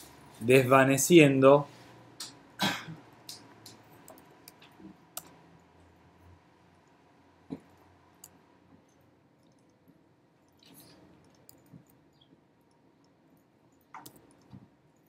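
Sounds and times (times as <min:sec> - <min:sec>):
computer mouse clicks: 0:03.3 - 0:05.4, 0:09.4 - 0:09.8, 0:10.4 - 0:15.0.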